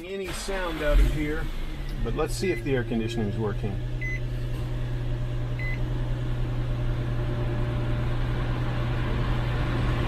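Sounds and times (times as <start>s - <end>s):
low hum: 0.3s - 10.0s
short electronic beep: 4.0s - 4.2s.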